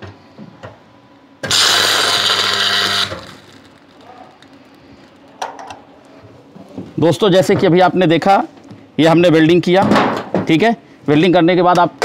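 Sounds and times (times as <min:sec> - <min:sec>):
steady hum: 0:00.0 - 0:06.2
welding arc hissing buzz: 0:01.4 - 0:05.0.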